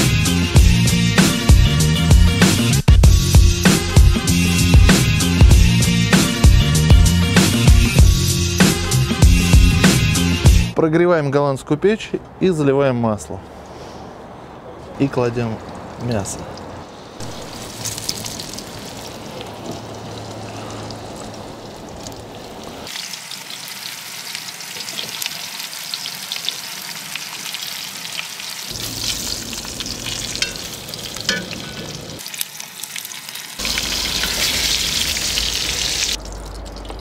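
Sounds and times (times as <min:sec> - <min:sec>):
meat sizzling in hot oil: 0:16.9 - 0:36.3.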